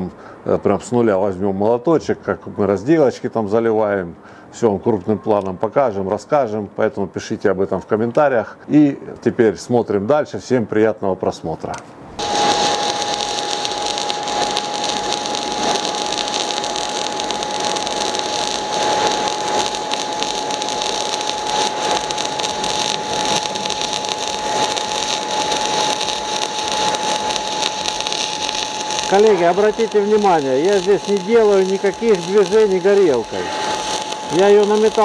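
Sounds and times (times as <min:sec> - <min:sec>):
welding arc hissing: 0:12.1 - 0:35.0.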